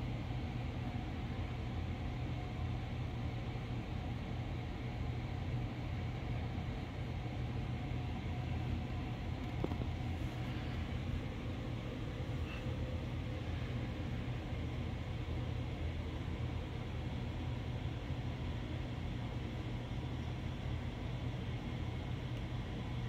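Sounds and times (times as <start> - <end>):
aquarium filter humming: 0.0 - 23.0.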